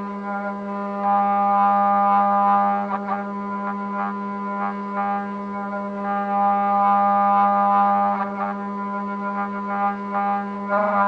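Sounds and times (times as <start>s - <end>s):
router spindle whining cutting wood: 0.0s - 11.0s.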